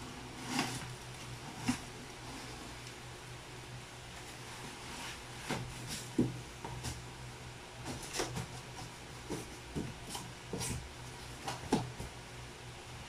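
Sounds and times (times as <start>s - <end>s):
cardboard box scraping and knocking: 0.3s - 2.6s.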